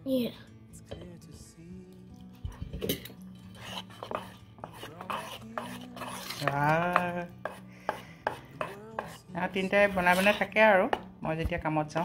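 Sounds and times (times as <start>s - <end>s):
metal spoon scraping steel bowl: 2.4s - 11.0s.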